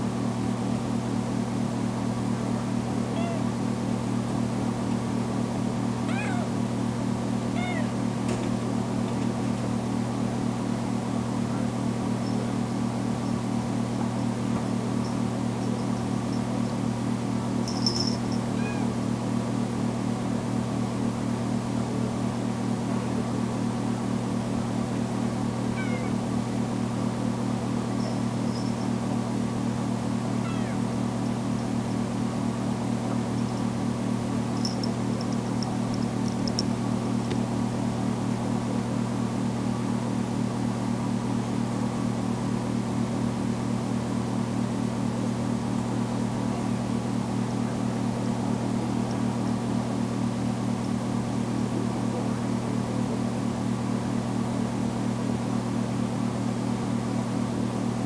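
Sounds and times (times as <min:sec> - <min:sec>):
kitten meowing: 0:03.1 - 0:03.5, 0:06.1 - 0:06.6, 0:07.5 - 0:08.0, 0:18.6 - 0:18.9, 0:25.8 - 0:26.2, 0:30.4 - 0:30.8
low steady hum: 0:11.4 - 0:21.2, 0:22.8 - 0:39.2.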